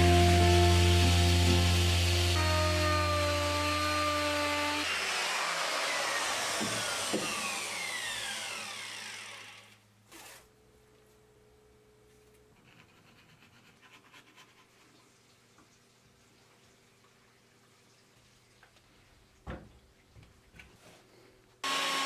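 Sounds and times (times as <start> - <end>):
router whine spinning down: 0.0 - 9.8, 21.6 - 22.0.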